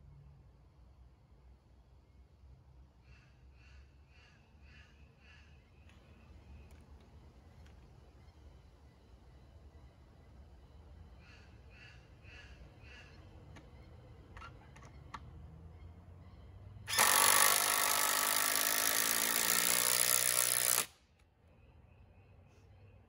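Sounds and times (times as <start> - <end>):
cordless drill drilling into timber: 16.9 - 21.0.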